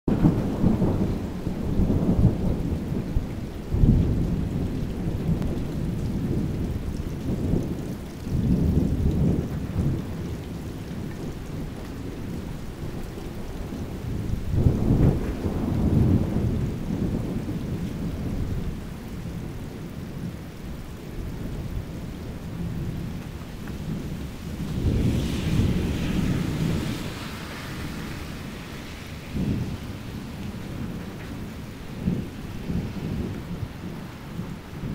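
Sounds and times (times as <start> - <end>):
steady rain: 0.1 - 34.9
thunder rumbling: 0.1 - 34.9
thunder crack: 13.6 - 18.7, 23.8 - 34.9.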